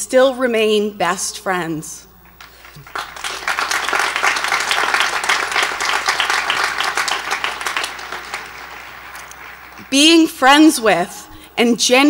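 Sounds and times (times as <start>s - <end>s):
audience applauding: 2.4s - 10.3s.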